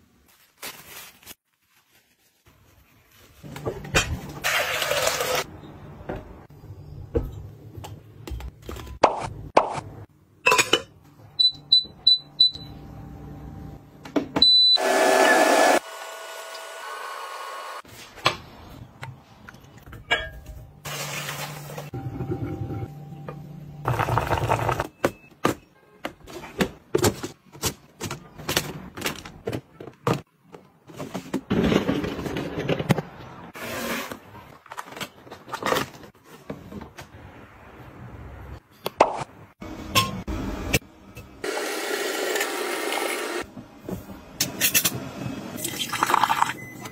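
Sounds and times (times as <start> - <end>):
kitchenware clinking and knocking: 10.4 - 11.0, 19.8 - 20.7.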